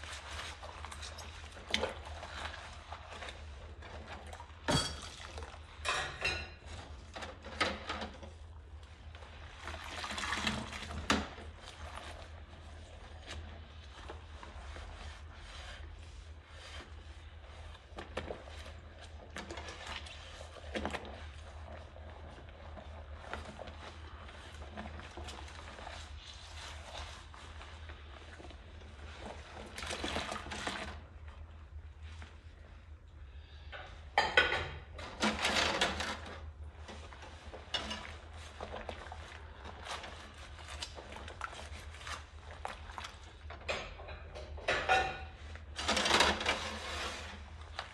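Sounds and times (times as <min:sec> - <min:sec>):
sponge scrubbing bowl: 0:00.0 - 0:34.2, 0:34.9 - 0:47.9
dishes clinking in a sink: 0:04.6 - 0:08.1, 0:33.7 - 0:35.5, 0:43.6 - 0:45.4
dishes clattering: 0:04.7 - 0:05.2, 0:05.8 - 0:06.6, 0:43.7 - 0:45.4.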